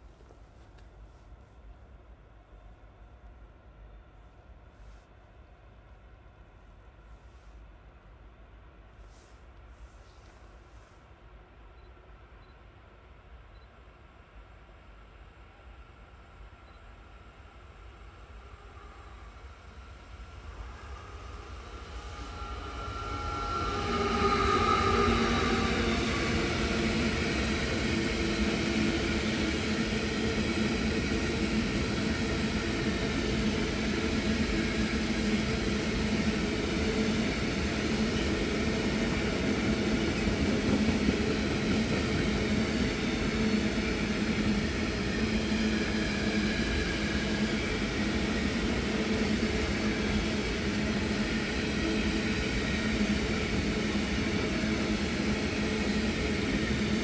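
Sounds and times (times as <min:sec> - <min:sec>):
train wheels rumbling on rails: 0:17.5 - 0:57.0.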